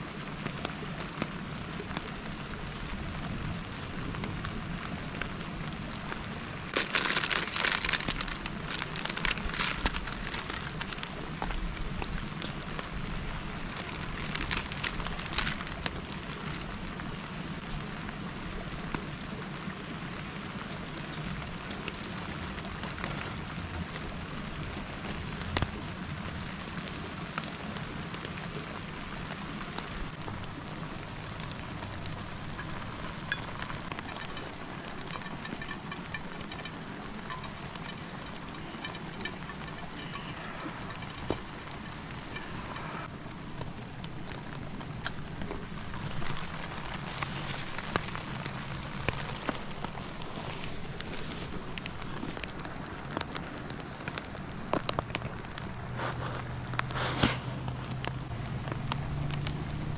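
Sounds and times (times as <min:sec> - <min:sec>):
steady rain: 0:00.0 - 0:59.9
plastic packet crinkling: 0:06.7 - 0:11.7, 0:13.7 - 0:16.0, 0:45.4 - 0:55.6.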